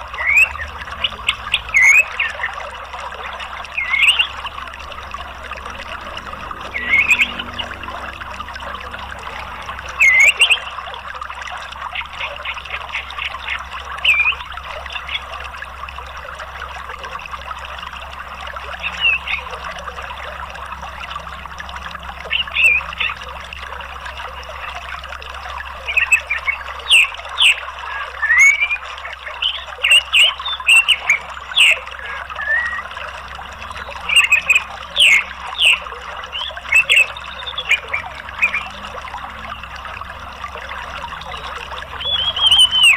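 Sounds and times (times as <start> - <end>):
flowing water: 0.0 - 42.9
thrush chirps and whistles: 9.9 - 10.7, 25.9 - 28.8, 33.8 - 38.7, 41.3 - 42.9.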